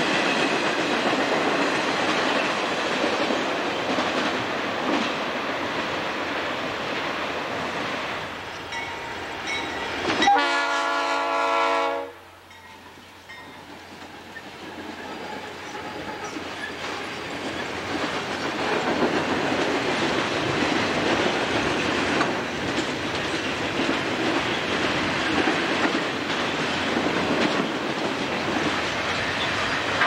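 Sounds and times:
locomotive air horn: 10.2s - 12.3s.

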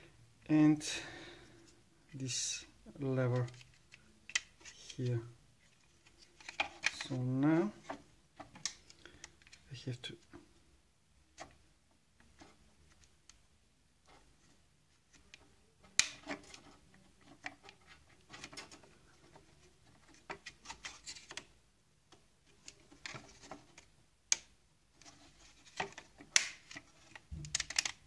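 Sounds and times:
metal tool clicking and scraping plastic: 25.0s - 28.0s.

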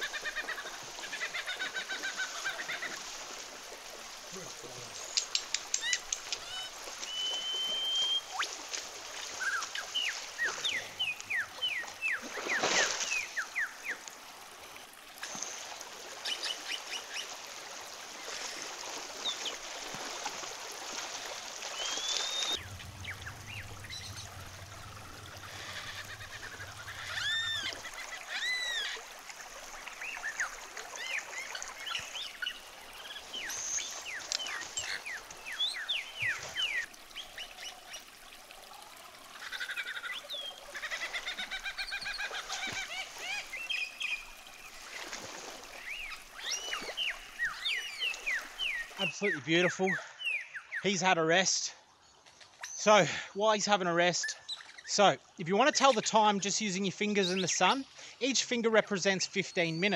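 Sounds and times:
splashing footsteps in water: 0.0s - 14.2s, 15.2s - 24.3s, 25.4s - 36.9s, 40.7s - 49.0s
river water running: 0.0s - 59.9s
birds chirping: 4.2s - 14.2s, 18.2s - 38.2s, 39.4s - 59.9s.

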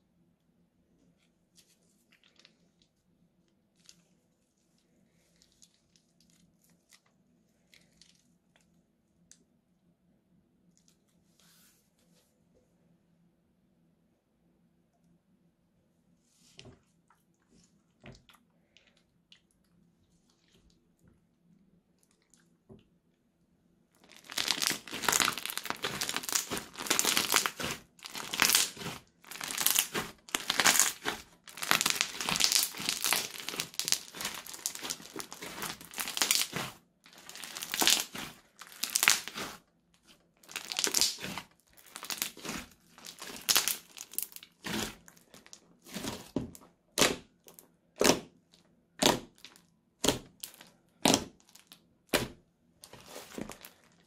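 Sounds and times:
slime crackling when squeezed: 24.0s - 39.6s, 40.4s - 46.3s.

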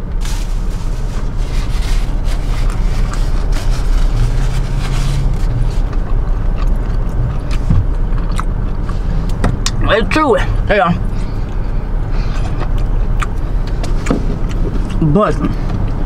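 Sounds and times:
paper napkin rustling: 0.0s - 6.0s
car engine rumble in cabin: 0.0s - 16.0s
close-up chewing: 1.1s - 9.8s, 11.1s - 15.1s.

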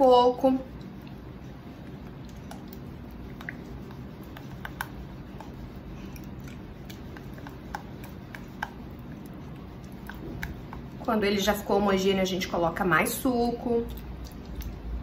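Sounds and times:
spoon squishing thick cream: 0.5s - 11.6s.

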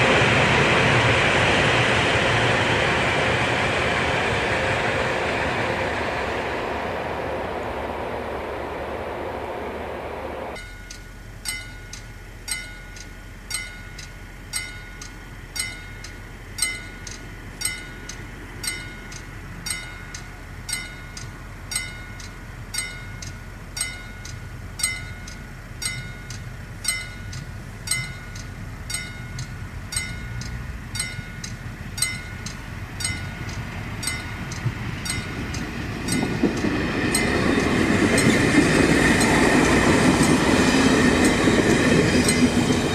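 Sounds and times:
diesel railcar rumble: 0.0s - 42.9s
low noise: 0.0s - 42.9s
high ring: 10.6s - 34.5s
crossing warning bell: 10.6s - 42.9s.

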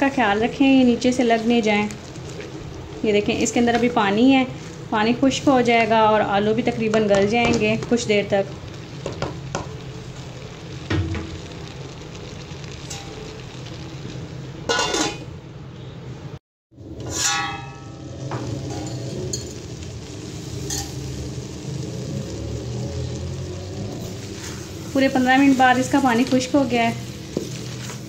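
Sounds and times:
vegetables sizzling in a pan: 0.0s - 15.4s, 17.1s - 28.0s
metal pan lid clattering: 14.7s - 15.2s.

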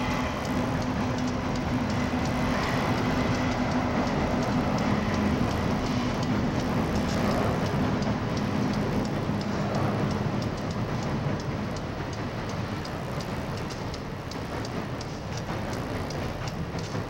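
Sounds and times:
diesel locomotive engine drone: 0.0s - 17.0s
train rushing over steel bridge: 0.0s - 17.0s.

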